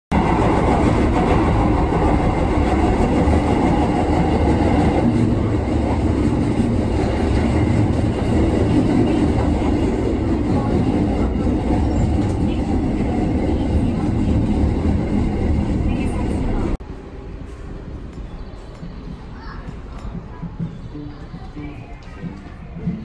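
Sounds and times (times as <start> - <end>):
train rumbling on rails: 0.1 - 23.0.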